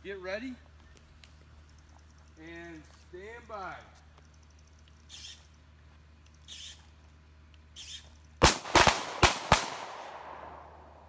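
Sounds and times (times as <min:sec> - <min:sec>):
handgun shots with echo: 0:08.4 - 0:10.8.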